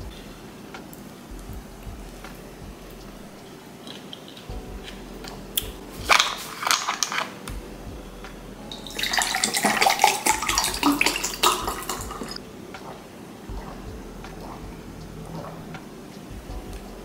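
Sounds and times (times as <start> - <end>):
plastic bottle crackling: 5.3 - 7.4, 8.9 - 13.0
water pouring into a glass: 8.7 - 12.4.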